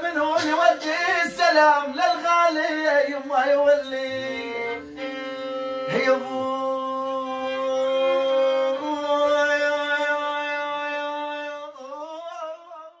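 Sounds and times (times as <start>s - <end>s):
violin playing slow improvisation: 4.5s - 9.8s.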